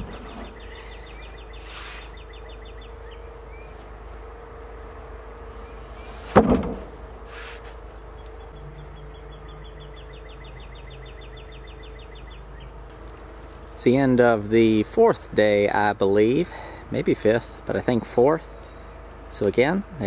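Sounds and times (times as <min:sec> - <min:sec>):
heavy thump of wood slab dropped: 0:06.3 - 0:07.0.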